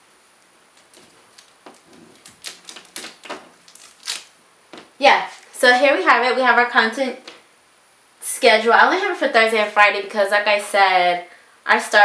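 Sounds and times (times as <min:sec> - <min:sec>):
paper rustling: 0:00.7 - 0:05.5
hands tapping paper on wall: 0:00.8 - 0:04.9.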